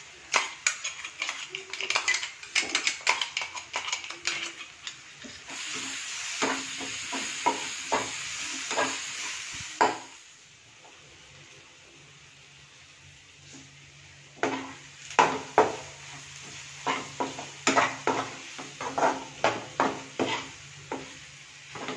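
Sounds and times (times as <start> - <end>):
onions sizzling in hot oil: 0.0 - 21.9
metal spoon scraping pan: 0.3 - 5.6.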